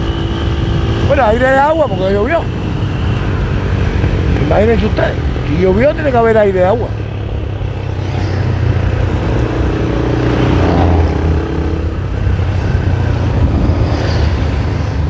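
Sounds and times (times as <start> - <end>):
wind and road noise: 0.0 - 15.0.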